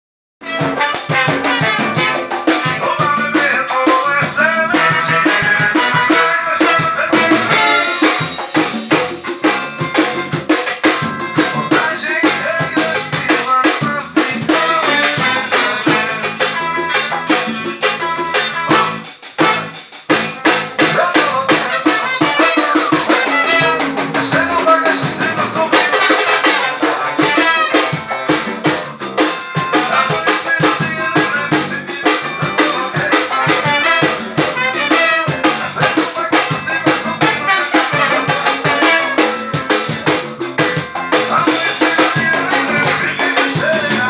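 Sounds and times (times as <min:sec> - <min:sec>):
drums and hand drums: 0:00.4 - 0:44.0
electric guitar: 0:00.4 - 0:44.0
keyboard: 0:00.4 - 0:44.0
saxophone: 0:00.4 - 0:44.0
trombone: 0:00.4 - 0:44.0.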